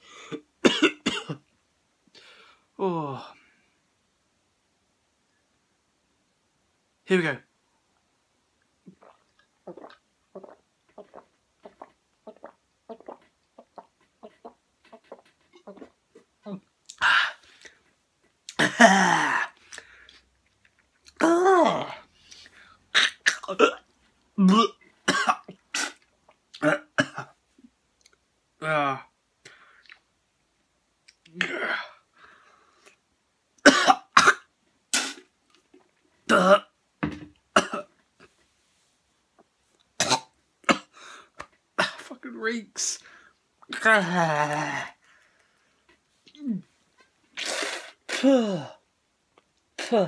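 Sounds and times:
man coughing: 0:00.3 - 0:01.4, 0:24.5 - 0:25.5
man groaning: 0:02.8 - 0:03.3
person gulping drink: 0:08.8 - 0:17.8, 0:47.3 - 0:48.2.

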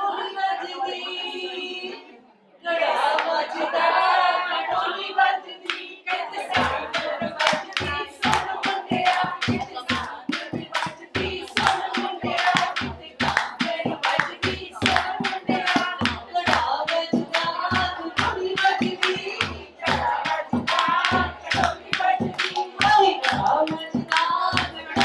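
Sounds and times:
women singing folk songs: 0:00.0 - 0:25.0
hand claps: 0:05.6 - 0:05.8, 0:06.4 - 0:25.0
hand drum beat: 0:06.5 - 0:25.0.

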